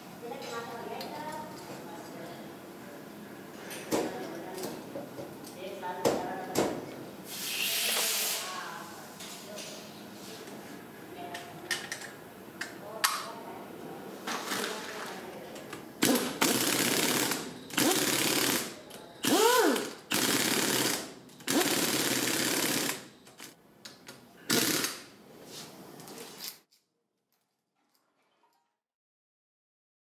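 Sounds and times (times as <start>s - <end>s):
impact wrench hammering: 16.0s - 23.1s.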